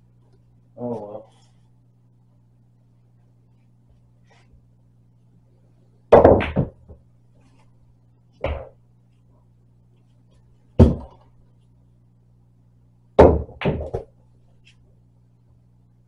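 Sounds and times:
pool balls clacking: 13.2s - 14.1s.

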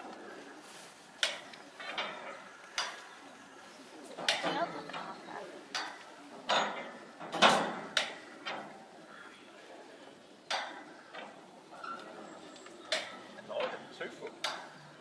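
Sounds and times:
steel bar clanking on metal: 5.7s - 8.7s.

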